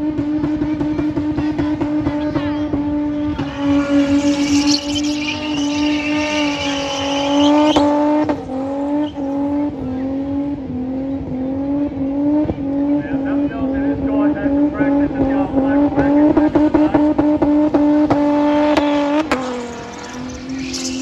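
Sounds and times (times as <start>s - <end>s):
car engine revving: 0.0s - 21.0s
tyres squealing: 2.4s - 9.7s, 19.2s - 21.0s.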